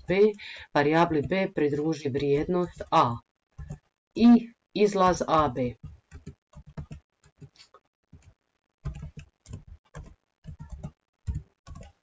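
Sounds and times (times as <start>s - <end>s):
computer keyboard typing: 0.0s - 3.9s, 5.1s - 12.0s.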